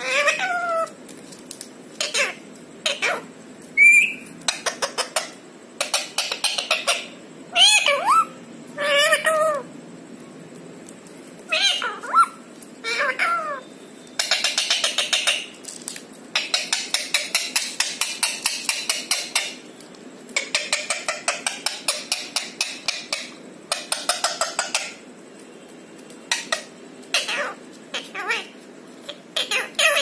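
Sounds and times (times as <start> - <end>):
parakeet calls: 0.0 - 1.0, 2.0 - 9.7, 11.5 - 15.6, 16.3 - 19.7, 20.4 - 25.0, 26.3 - 30.0
parakeet clicking: 14.2 - 19.6.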